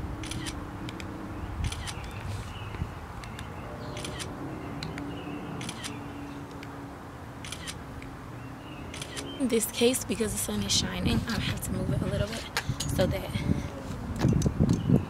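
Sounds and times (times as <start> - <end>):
phone camera shutter double click: 0.2 - 0.6, 1.6 - 2.1, 4.0 - 4.3, 5.6 - 6.0, 7.4 - 7.8.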